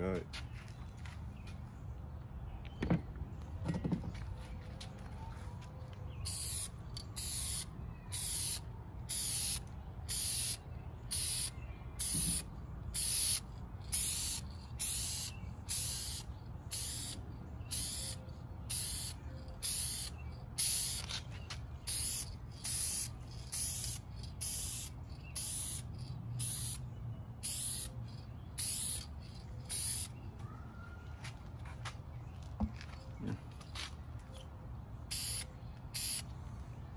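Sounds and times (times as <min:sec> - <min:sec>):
spray paint can hissing: 0:06.2 - 0:30.2, 0:35.1 - 0:36.3.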